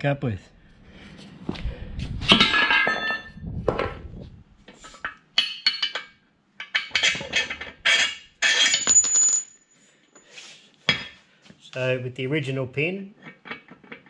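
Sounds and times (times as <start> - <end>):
steel parts knocking and clinking: 2.3 - 3.8, 5.4 - 9.6.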